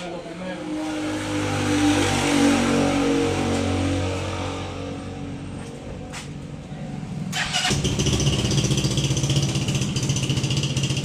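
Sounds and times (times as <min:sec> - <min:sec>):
motorcycle engine idling: 0:07.3 - 0:11.0.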